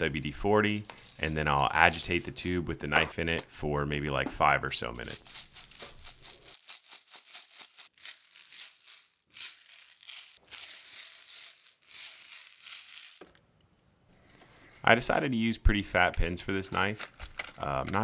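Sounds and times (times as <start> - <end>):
pebbles rattling in a pipe: 0.6 - 2.3, 5.0 - 13.4, 16.1 - 18.0.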